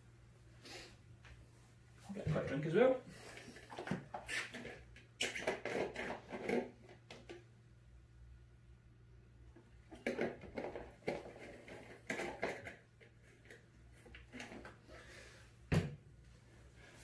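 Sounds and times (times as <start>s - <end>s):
bottle clicks and rustles: 9.9s - 14.8s.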